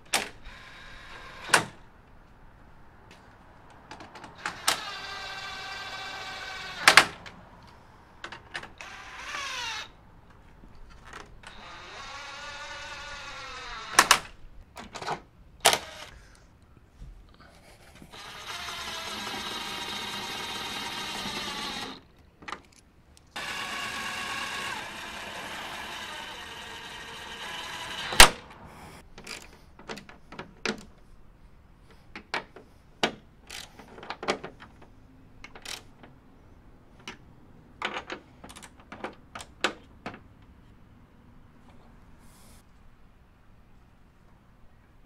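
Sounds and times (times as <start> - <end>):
impact driver running: 18.1 - 22.0, 23.4 - 28.4.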